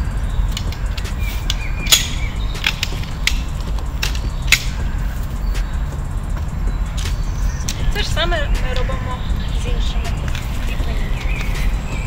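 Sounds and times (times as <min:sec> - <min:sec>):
steady low rumble: 0:00.0 - 0:12.0
aluminium frame clicks and knocks: 0:00.5 - 0:04.9.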